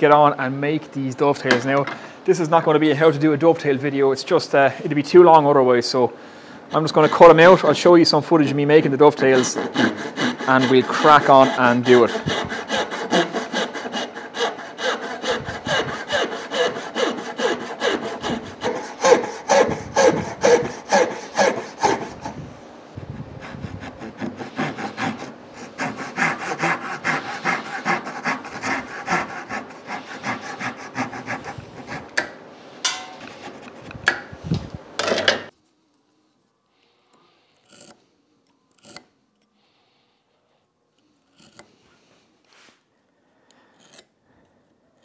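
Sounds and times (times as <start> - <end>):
hand saw cutting wood: 6.7 - 7.8, 9.0 - 22.4, 23.1 - 32.3, 37.6 - 38.0, 38.8 - 39.1, 41.3 - 41.8.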